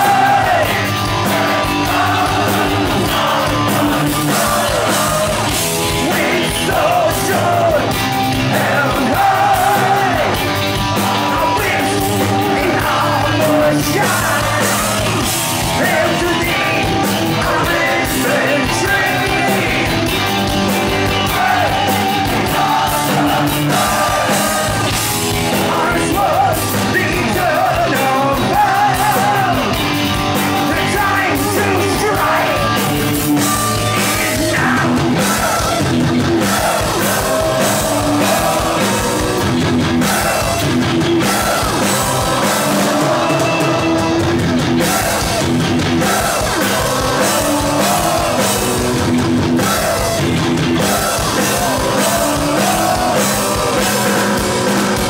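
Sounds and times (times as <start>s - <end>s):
distorted electric guitars: 0.0s - 55.0s
drum kit: 0.0s - 55.0s
person singing with vibrato: 30.6s - 55.0s.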